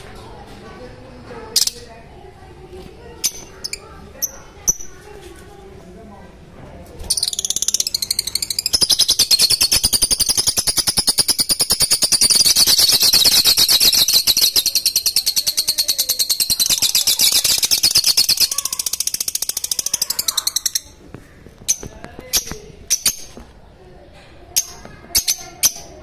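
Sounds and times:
lovebirds chirping: 7.0s - 23.4s.

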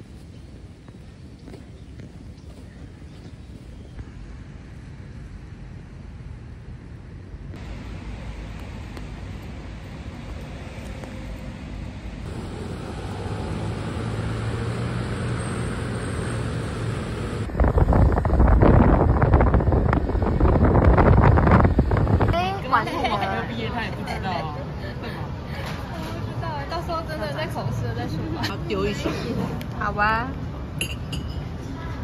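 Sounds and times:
passing traffic: 3.0s - 32.0s
wind buffeting microphone: 17.1s - 22.6s.

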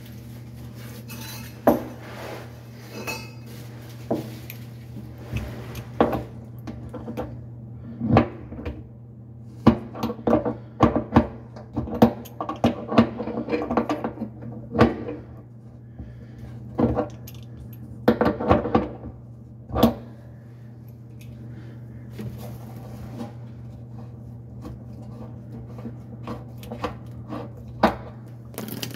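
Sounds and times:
metal tool clinking and scraping: 1.0s - 1.7s, 2.9s - 3.5s.

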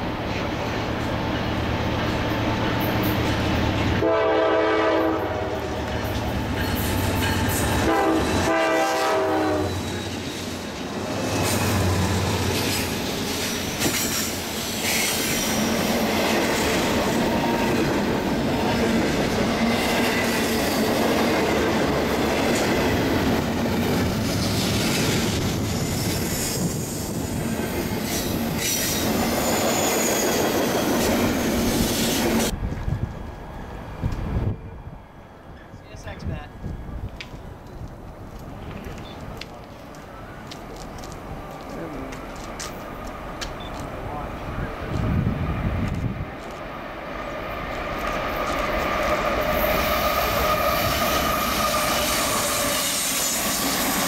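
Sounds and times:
rail cars clacking: 0.0s - 54.0s
train wheels roaring on rail: 0.0s - 54.0s
locomotive horn blasts: 4.0s - 5.8s, 7.8s - 9.8s.

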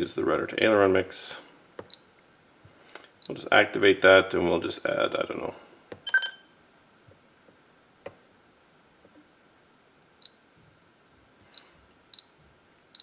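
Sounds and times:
short high beep: 6.1s - 6.5s.

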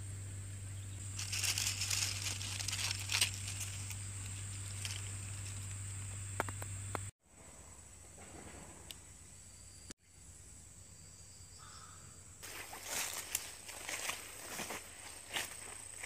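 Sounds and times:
low hum: 0.0s - 11.3s
leaf crackling and rustling: 1.0s - 6.0s, 12.4s - 16.0s.

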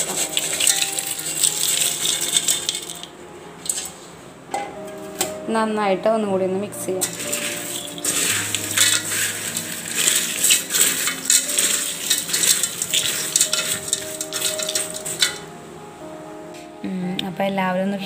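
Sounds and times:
dry snack rustling in metal bowl: 0.0s - 4.0s, 7.0s - 15.5s.

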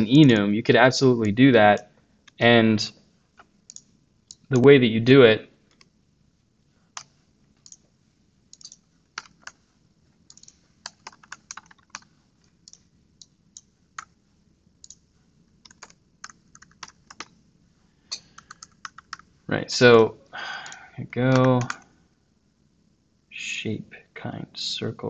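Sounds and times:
faint keyboard typing: 0.0s - 0.6s, 1.2s - 4.7s, 5.6s - 6.0s, 6.9s - 7.9s, 8.5s - 17.4s, 18.0s - 19.4s, 20.5s - 22.0s.

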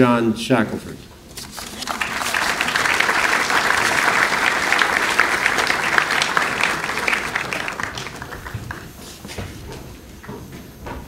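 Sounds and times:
audience applauding: 1.5s - 9.1s.

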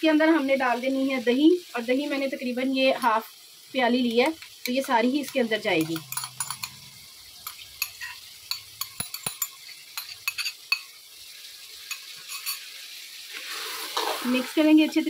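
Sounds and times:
faint sizzle of frying: 0.0s - 15.0s
metal spoon scraping a bowl: 5.3s - 6.8s, 7.4s - 10.8s, 11.9s - 12.6s, 13.5s - 14.6s.

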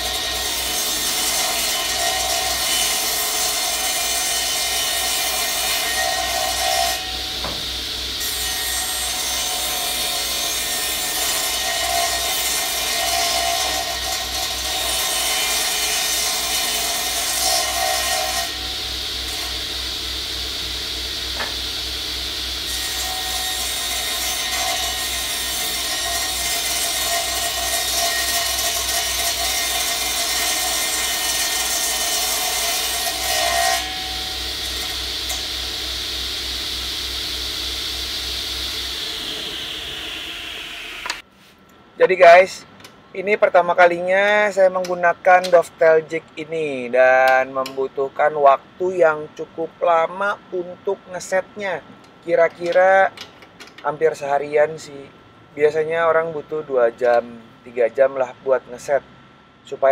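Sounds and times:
saw blade cutting wood: 0.0s - 41.2s
table saw motor hum: 0.0s - 41.2s.

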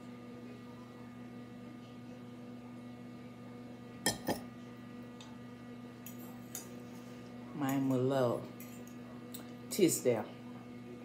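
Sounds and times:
low electrical hum: 0.0s - 11.0s
tableware clinking: 4.1s - 4.4s.

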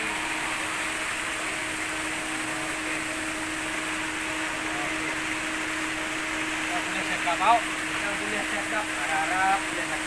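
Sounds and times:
churning water hiss: 0.0s - 10.0s
low motor hum: 0.0s - 10.0s.

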